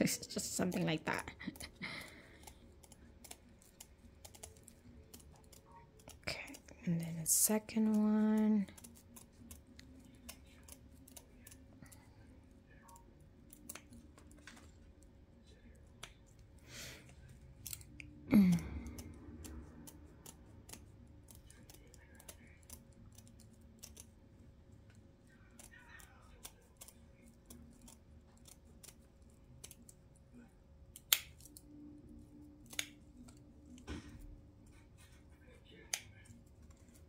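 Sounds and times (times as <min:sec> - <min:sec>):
scissors snipping mesh: 0:30.9 - 0:31.6, 0:32.6 - 0:34.2.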